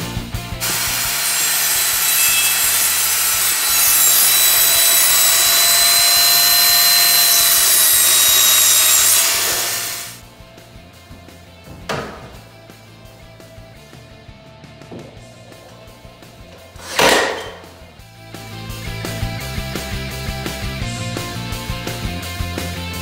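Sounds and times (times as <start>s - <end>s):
background music: 0.0s - 1.5s, 10.1s - 23.0s
power saw cutting wood: 0.6s - 10.2s, 15.5s - 17.8s.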